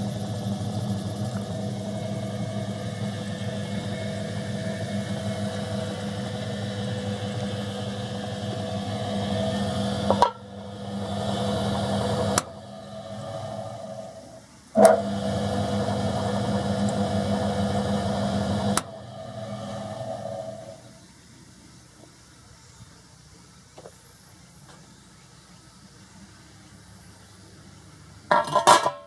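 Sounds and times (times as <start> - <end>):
electric motor humming: 0.0 - 20.9.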